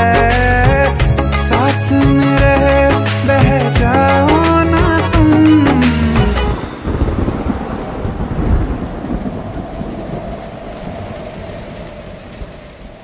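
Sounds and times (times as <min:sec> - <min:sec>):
music: 0:00.0 - 0:07.2
rain falling: 0:05.0 - 0:13.0
rolls of thunder: 0:06.5 - 0:13.0.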